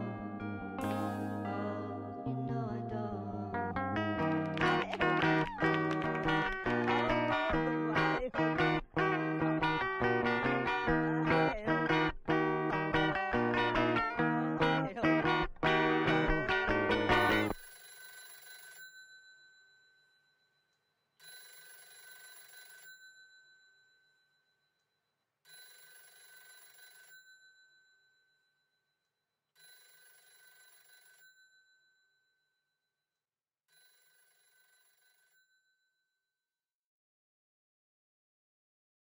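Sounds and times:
telephone ringing: 0:00.7 - 0:02.5, 0:03.5 - 0:19.7, 0:21.2 - 0:23.8, 0:25.5 - 0:27.8, 0:29.6 - 0:31.6, 0:33.8 - 0:35.6.

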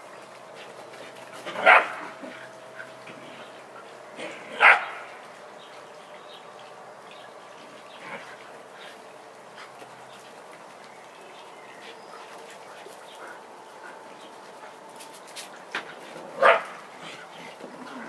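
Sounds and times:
dog barking: 0:01.6 - 0:02.0, 0:04.6 - 0:05.0, 0:16.4 - 0:16.7.

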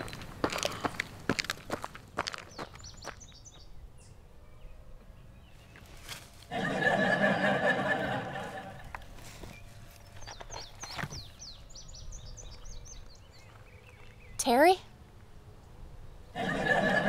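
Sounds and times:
running footsteps on gravel: 0:00.0 - 0:03.7
bush branches rustling: 0:05.6 - 0:06.5, 0:08.8 - 0:11.0.

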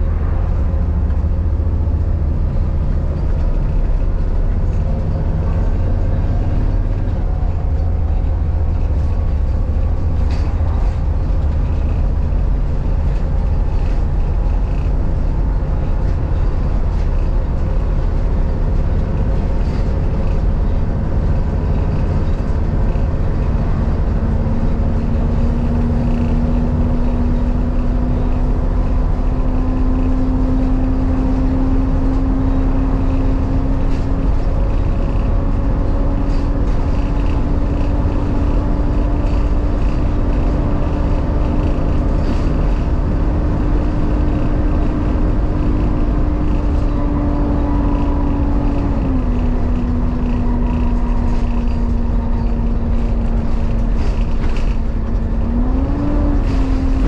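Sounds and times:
bus engine and road rumble: 0:00.0 - 0:57.0.

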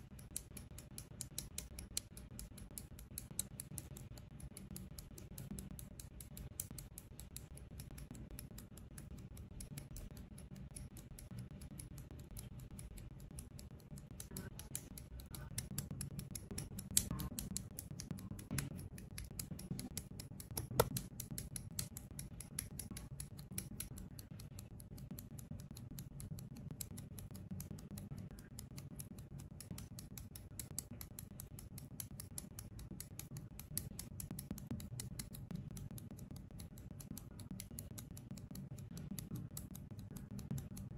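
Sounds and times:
sharp plastic snaps: 0:14.1 - 0:24.5.

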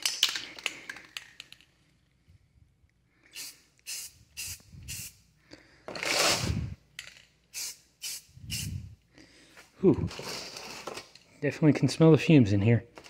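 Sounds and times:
spray paint can hissing: 0:03.3 - 0:05.2, 0:07.5 - 0:08.9.

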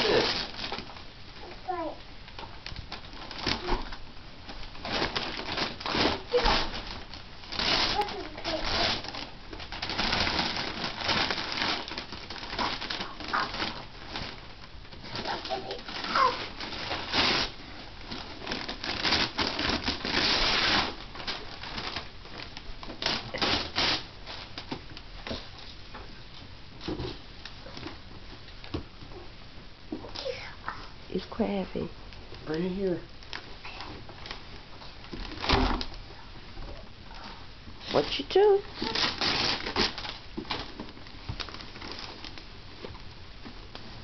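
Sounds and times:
wrapping paper rustling and tearing: 0:00.0 - 0:25.8, 0:32.4 - 0:36.0, 0:36.7 - 0:44.0
toddler vocalizing: 0:15.3 - 0:16.5.

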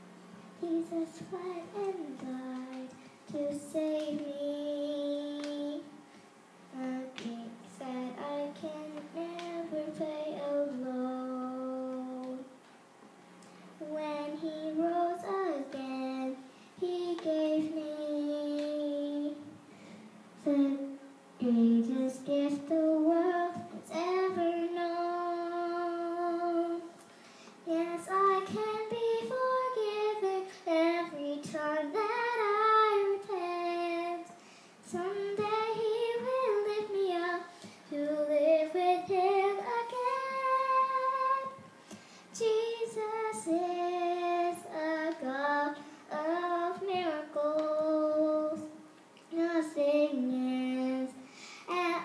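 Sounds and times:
girl singing: 0:00.6 - 0:12.6, 0:13.8 - 0:19.7, 0:20.4 - 0:27.0, 0:27.6 - 0:52.0.

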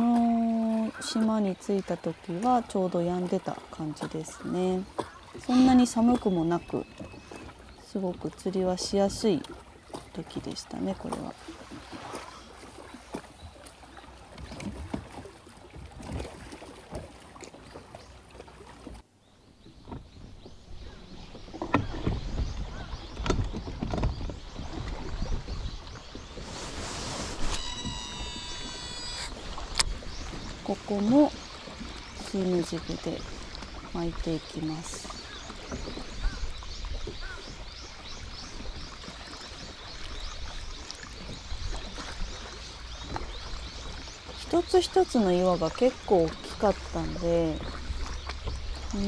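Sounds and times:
small waves slapping boat hull: 0:00.0 - 0:49.0
wind rumble on microphone: 0:19.6 - 0:32.4
quick high chirping: 0:26.7 - 0:29.4.

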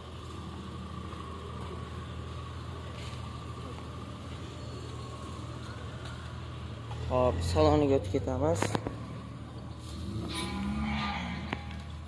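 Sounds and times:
low engine hum: 0:00.0 - 0:12.0.

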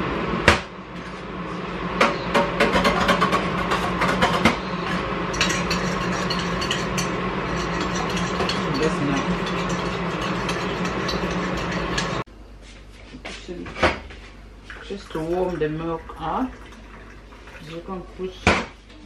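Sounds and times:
steady mechanical hum: 0:00.0 - 0:19.0
bowl and utensils clicking: 0:05.3 - 0:12.2.

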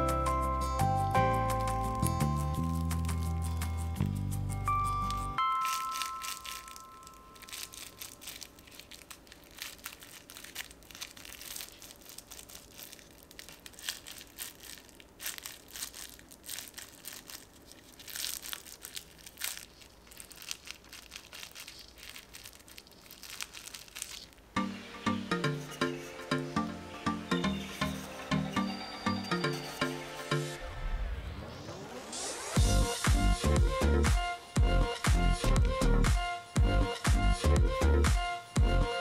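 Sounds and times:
plastic wrap crinkling: 0:01.3 - 0:24.7, 0:25.5 - 0:26.2, 0:27.4 - 0:28.3.

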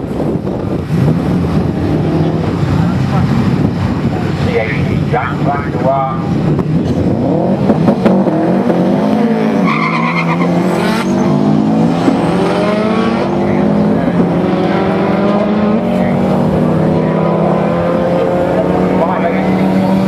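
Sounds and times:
wind buffeting microphone: 0:00.0 - 0:09.1
cars accelerating hard: 0:00.0 - 0:20.0.

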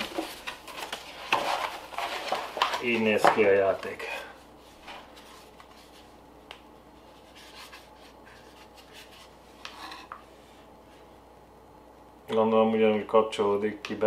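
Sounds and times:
light rubbing and handling noise: 0:00.0 - 0:11.2.

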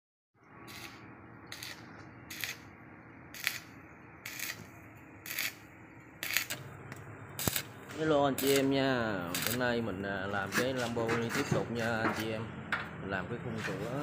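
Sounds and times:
steady low hum: 0:00.4 - 0:13.4
arc welding crackling sizzle: 0:00.6 - 0:02.7, 0:03.3 - 0:09.9.

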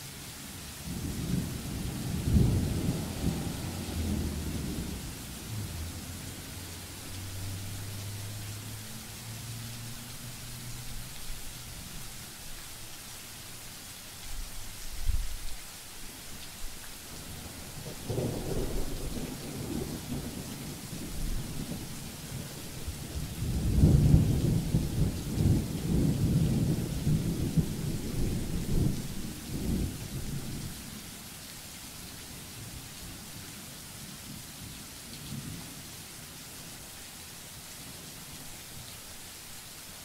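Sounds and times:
rain hiss: 0:00.0 - 0:40.0
thunder rumbling: 0:00.8 - 0:06.8, 0:18.0 - 0:21.9, 0:23.4 - 0:30.6.

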